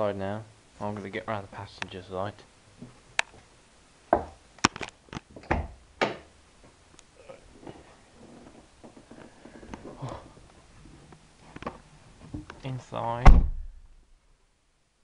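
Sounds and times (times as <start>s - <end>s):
rustling: 6.6s - 12.8s.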